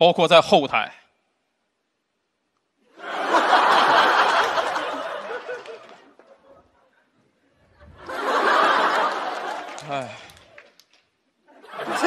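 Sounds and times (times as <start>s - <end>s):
audience laughing: 2.9s - 10.6s, 11.5s - 12.0s.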